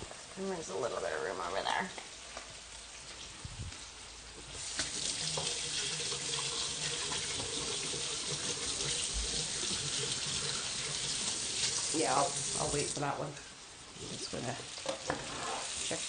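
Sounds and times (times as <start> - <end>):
faucet water running into sink: 4.5 - 13.2.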